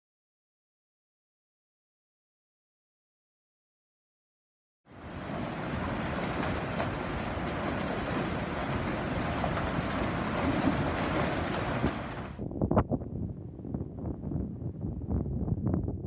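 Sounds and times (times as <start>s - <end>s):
water rushing through a channel: 4.9s - 12.4s.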